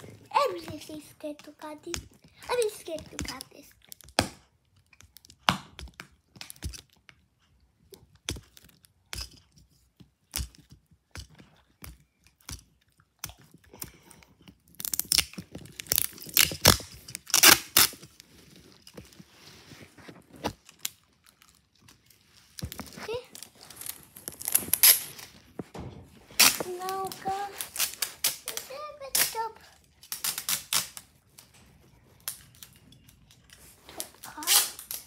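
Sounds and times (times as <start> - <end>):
paper crinkling and tearing: 14.8 - 31.5, 33.4 - 35.0.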